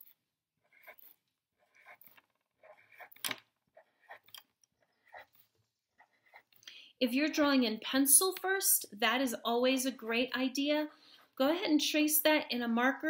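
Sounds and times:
marker drawing on paper: 0:00.6 - 0:06.6.

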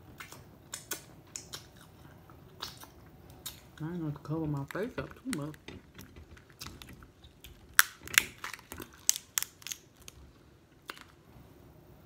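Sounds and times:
crawfish shell cracking: 0:02.6 - 0:11.2.

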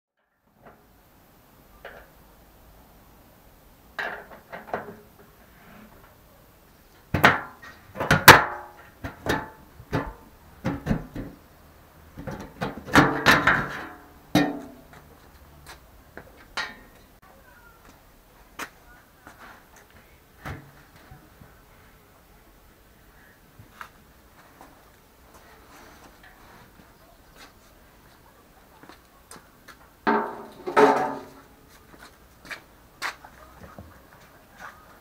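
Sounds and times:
metal clanks and scrapes: 0:12.2 - 0:15.1, 0:30.1 - 0:31.5.

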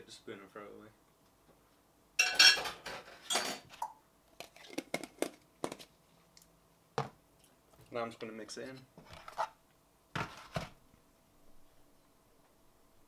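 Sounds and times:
metal spoon clattering: 0:02.2 - 0:03.6
cutlery and dishes clattering: 0:02.2 - 0:03.7.

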